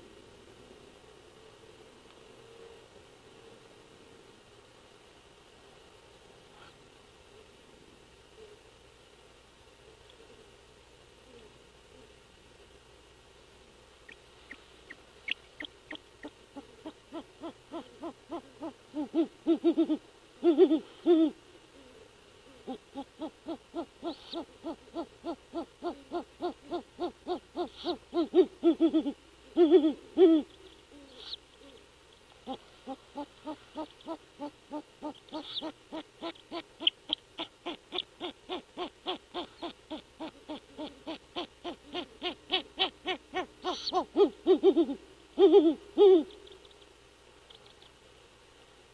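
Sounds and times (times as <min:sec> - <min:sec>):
owls hooting: 0:14.1 - 0:46.8.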